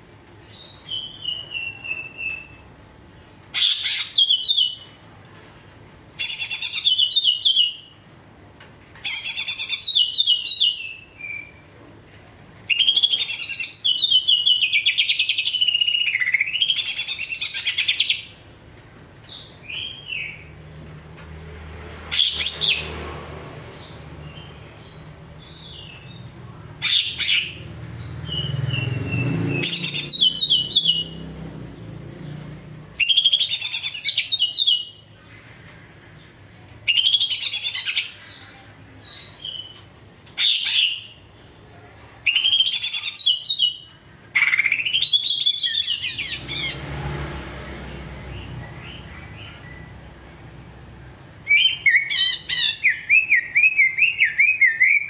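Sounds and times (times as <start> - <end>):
bird singing whistled phrases: 42.3 - 43.8, 51.5 - 55.0.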